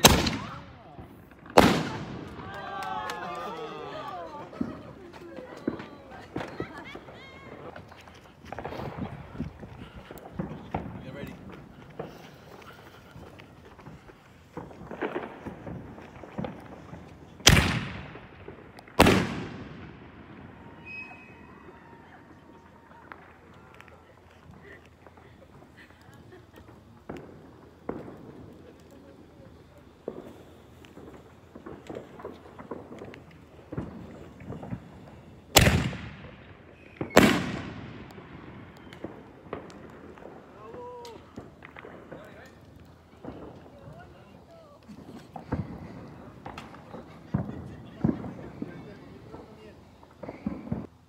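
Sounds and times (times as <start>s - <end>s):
fireworks bursting with echo: 0.0s - 51.0s.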